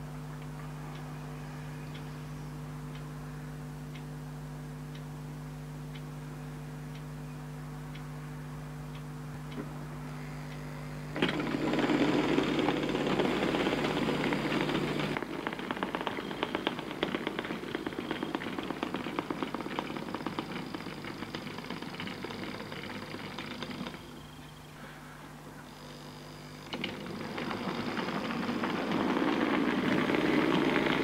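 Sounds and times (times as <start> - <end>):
model train motor whirring: 10.2 - 24.3, 25.7 - 31.0
wheels clicking over rail joints: 11.2 - 24.3, 26.6 - 31.0.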